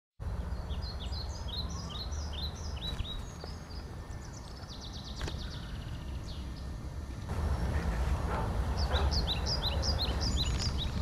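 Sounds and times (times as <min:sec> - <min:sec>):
small birds chirping: 0:00.2 - 0:11.0
bird trill: 0:00.5 - 0:06.7, 0:08.7 - 0:11.0.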